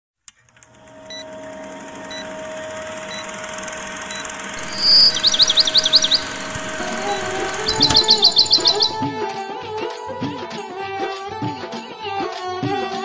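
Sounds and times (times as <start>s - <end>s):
film projector whirring: 0.3s - 9.0s
bird chirping: 4.1s - 9.0s
faint short beeps: 4.1s - 9.0s.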